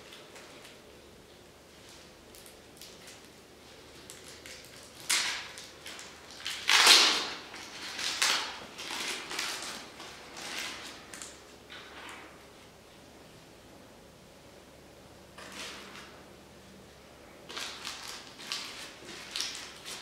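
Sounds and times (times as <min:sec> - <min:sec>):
plastic crinkling: 0:01.8 - 0:11.4, 0:17.5 - 0:20.0.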